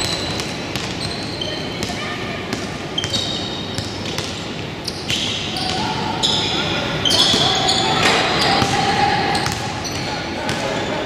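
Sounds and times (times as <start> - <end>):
basketball bouncing: 0.0 - 1.1
sneaker squeaks: 0.0 - 11.0
indistinct voices: 5.5 - 11.0.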